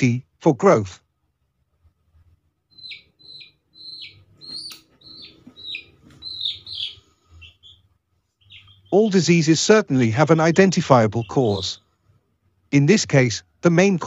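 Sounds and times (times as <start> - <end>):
chick peeping: 2.1 - 9.3, 9.9 - 11.9.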